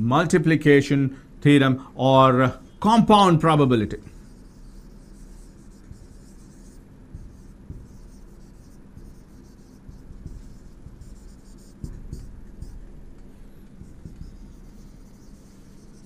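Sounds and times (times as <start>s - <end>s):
low steady hum: 0.0s - 16.0s
marker writing on whiteboard: 4.1s - 16.0s.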